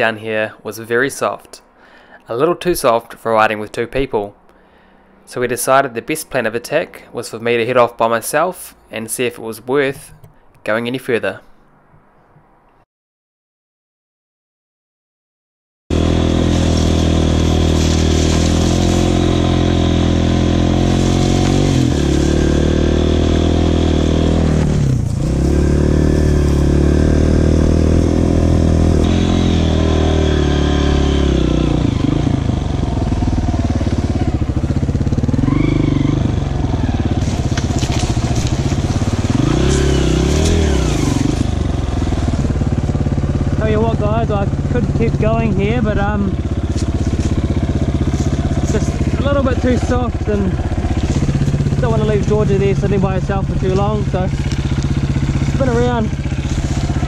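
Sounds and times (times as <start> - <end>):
dirt bike engine revving: 15.9 - 57.0.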